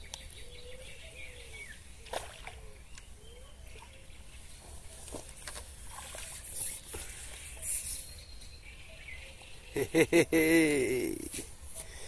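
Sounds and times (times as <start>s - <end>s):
water splashing off a net: 2.1s - 2.6s
person speaking: 10.4s - 11.5s.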